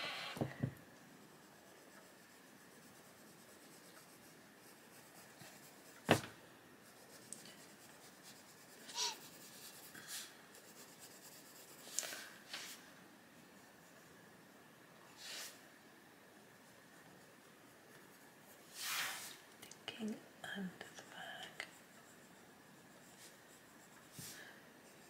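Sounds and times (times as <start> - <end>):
coloured pencil scratching on paper: 1.2 - 6.2, 6.8 - 12.2, 21.4 - 25.0.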